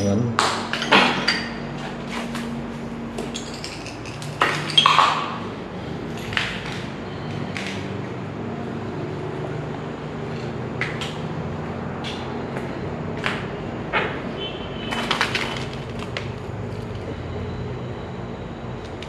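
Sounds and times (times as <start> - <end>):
steady low hum: 0.0 - 14.9.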